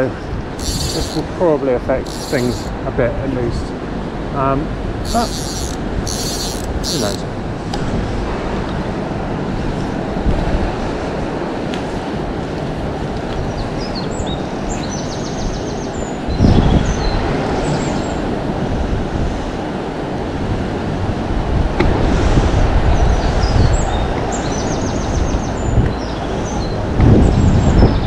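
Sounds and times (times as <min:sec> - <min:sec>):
songbird twittering: 0:00.6 - 0:01.3, 0:02.0 - 0:02.8, 0:05.0 - 0:07.3
wind buffeting microphone: 0:16.3 - 0:17.5, 0:25.0 - 0:28.0.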